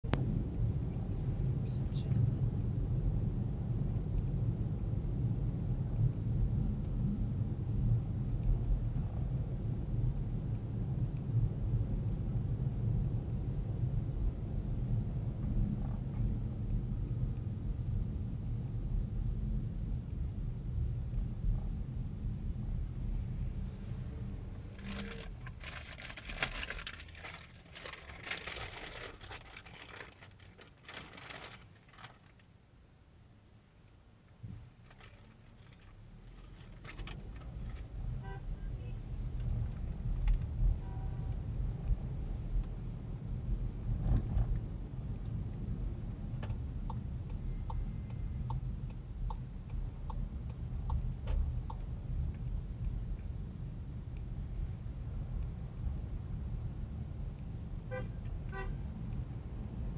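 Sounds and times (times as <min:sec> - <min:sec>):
road and engine rumble: 0:00.0 - 0:59.9
crinkling and rustling: 0:24.6 - 0:32.5, 0:34.5 - 0:37.9
turn signal ticking: 0:45.6 - 0:53.4.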